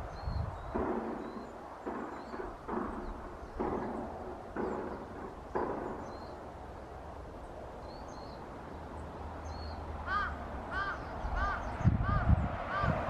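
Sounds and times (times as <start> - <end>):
small birds chirping: 0.0 - 13.0
bird repeated call: 9.5 - 13.0.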